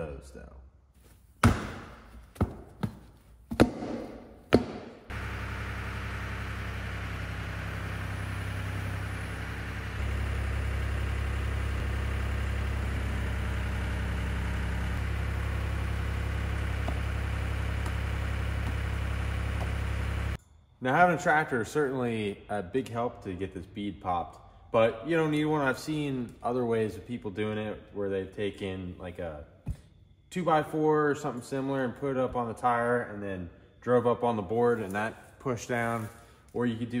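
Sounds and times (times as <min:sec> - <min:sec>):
foot stomping on a tire: 0:01.4 - 0:05.1, 0:16.6 - 0:20.0
tractor engine running: 0:04.0 - 0:20.4.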